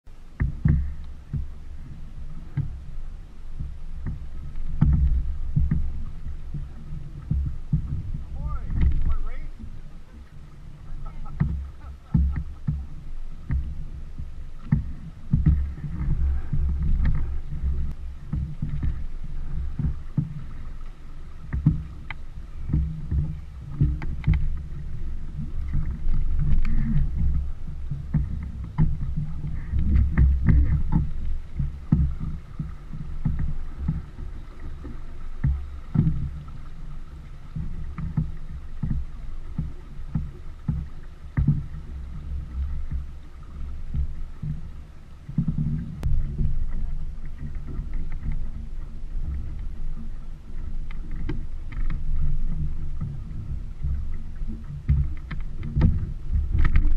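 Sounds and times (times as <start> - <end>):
water rushing along hull: 0.0 - 56.9
faint clicks: 0.4 - 1.5, 14.6 - 24.7, 25.5 - 36.7, 37.4 - 56.9
wind buffeting microphone: 3.6 - 36.7, 52.0 - 56.9.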